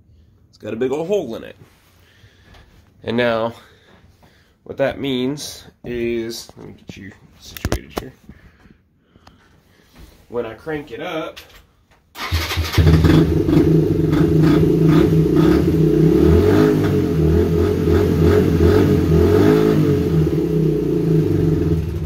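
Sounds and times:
engine throttle blips: 12.2s - 22.0s
motorcycle engine running loud: 12.8s - 19.2s, 19.9s - 22.0s.

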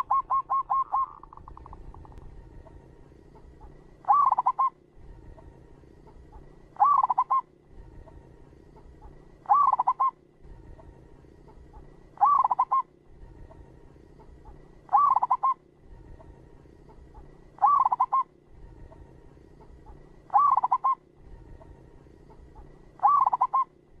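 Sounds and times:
dove cooing: 0.0s - 2.1s, 4.0s - 4.8s, 6.8s - 7.5s, 9.0s - 10.2s, 11.8s - 13.6s, 14.9s - 16.3s, 17.1s - 19.0s, 19.6s - 24.0s.

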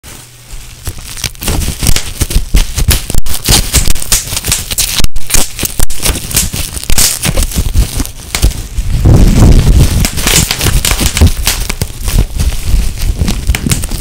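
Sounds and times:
bubble wrap popping: 0.0s - 14.0s.

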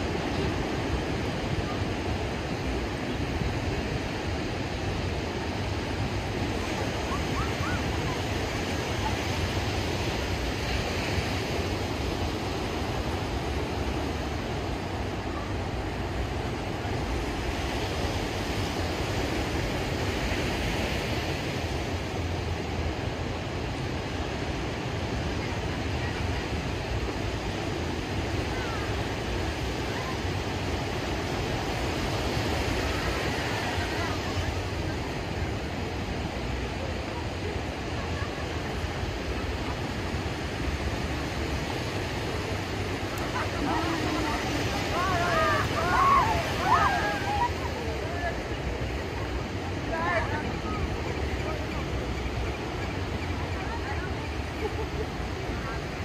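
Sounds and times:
ocean surf breaking on beach: 0.0s - 56.0s.

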